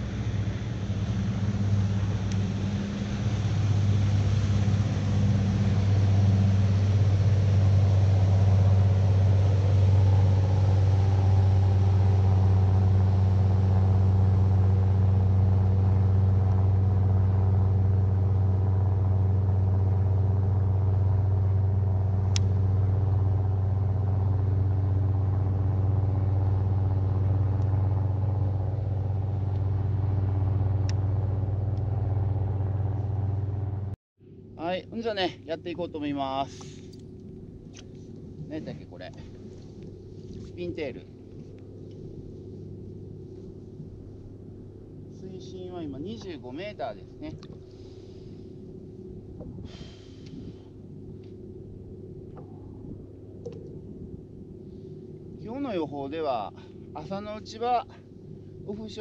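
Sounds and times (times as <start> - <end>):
motor humming: 0.0 - 34.0.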